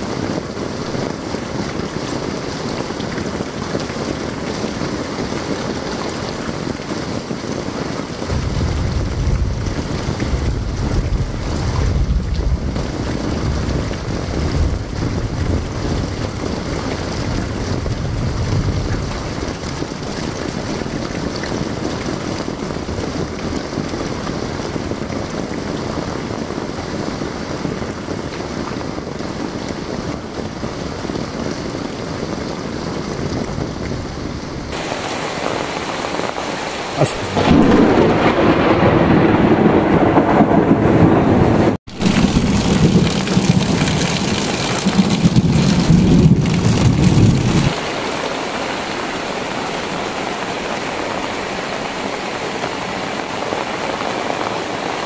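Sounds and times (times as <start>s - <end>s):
heavy rain pouring: 0.0s - 55.0s
low rumble: 8.3s - 15.7s, 37.0s - 44.5s.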